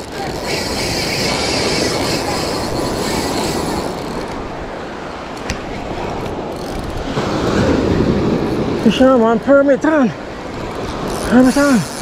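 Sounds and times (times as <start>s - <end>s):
fishing reel drag buzzing: 0.0s - 4.4s, 6.2s - 7.0s, 10.4s - 12.0s
wind on microphone: 0.0s - 9.4s
surf rushing: 0.0s - 12.0s.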